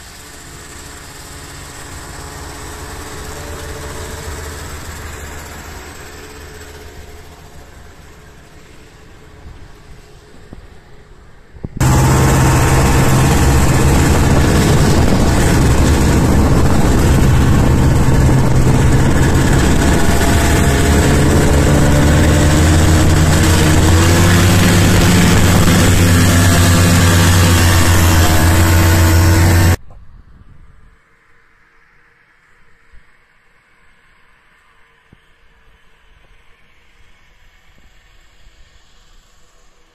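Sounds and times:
snowmobile engine running: 0.0s - 8.8s, 11.8s - 29.8s
hiss of track on snow: 34.6s - 39.9s.

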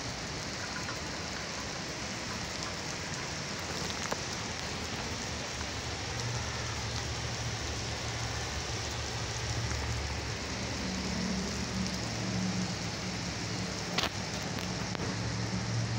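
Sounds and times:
rain on pavement: 0.0s - 15.9s.

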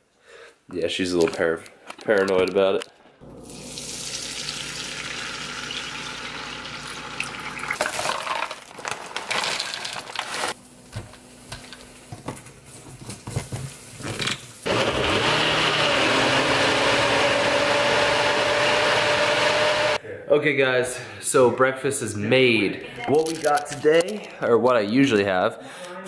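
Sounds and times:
personal blender running: 14.7s - 20.0s.

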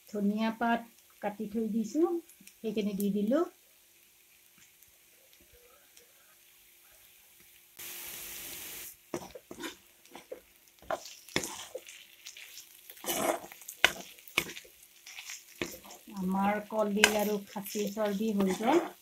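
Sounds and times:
spatula scraping an iron pan: 9.1s - 12.0s, 12.9s - 16.1s, 17.0s - 19.0s.

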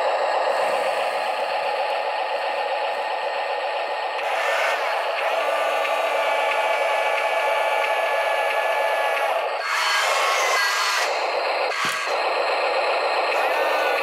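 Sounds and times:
small electric motors whining: 4.2s - 14.0s.

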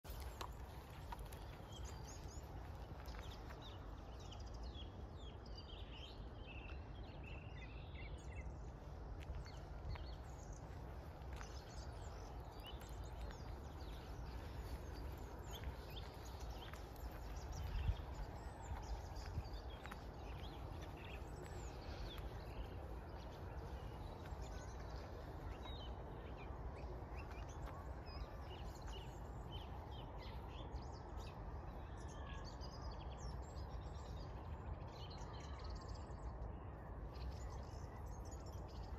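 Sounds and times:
small birds chirping: 0.0s - 38.9s
low outdoor rumble: 0.1s - 38.9s.

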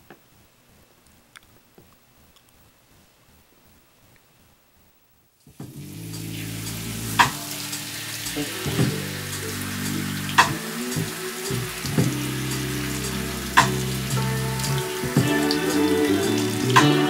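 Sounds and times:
shower spray hissing: 5.5s - 17.0s
low sustained music notes: 5.7s - 17.0s.

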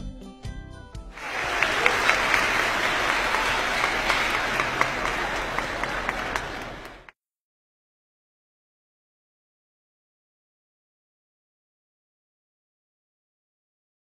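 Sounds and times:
crowd applauding: 1.2s - 7.1s.

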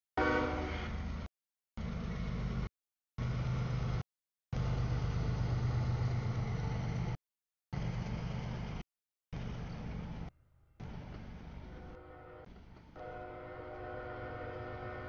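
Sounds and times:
diesel locomotive drone: 0.2s - 7.2s, 7.8s - 15.0s
rumble of passing freight cars: 4.6s - 7.2s.

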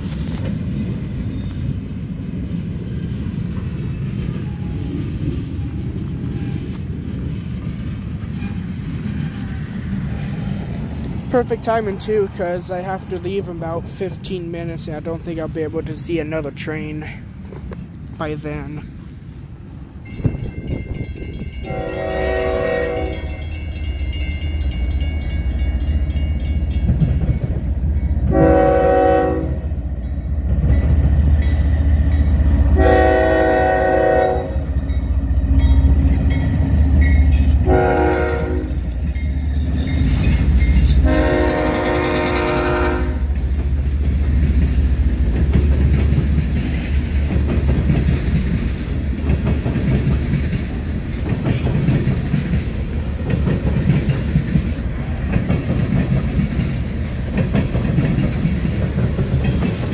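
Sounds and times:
diesel locomotive rumble: 0.0s - 59.9s
wheels clacking on rails: 0.0s - 59.9s
train air horn blasts: 21.6s - 23.4s, 28.3s - 29.6s, 32.7s - 34.7s, 37.6s - 38.8s, 41.0s - 43.3s.

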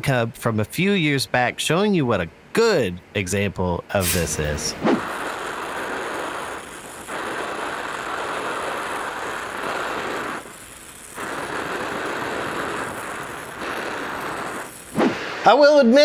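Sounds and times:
welding torch flame hissing: 3.9s - 16.0s.

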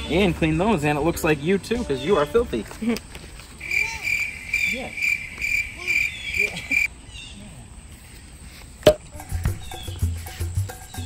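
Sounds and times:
insect chirping: 3.1s - 7.3s, 8.0s - 11.0s
sharp knock: 8.8s - 9.1s
low pulsing beat: 8.9s - 11.0s.

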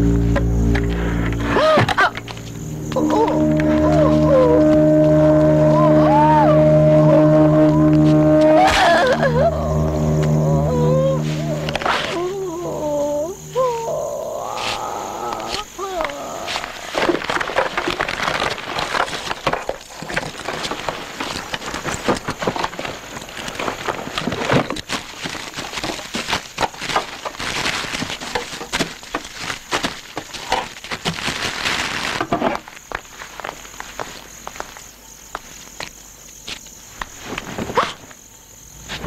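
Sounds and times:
dense crackling with pops: 14.5s - 38.2s.

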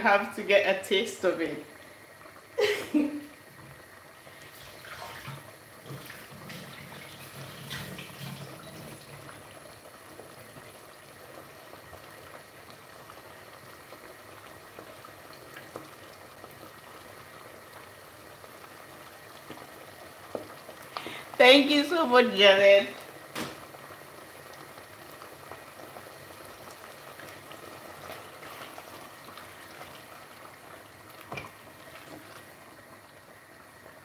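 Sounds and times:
sauce bubbling in a pot: 0.1s - 34.0s.

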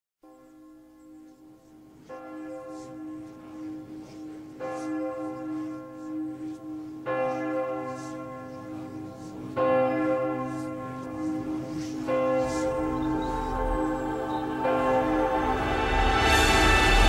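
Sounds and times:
bell-like ringing tones: 0.3s - 17.0s
low drone: 8.1s - 17.0s.

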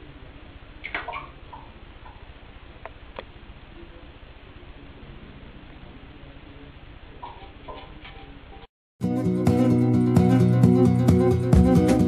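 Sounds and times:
strummed acoustic guitar: 9.0s - 12.0s.

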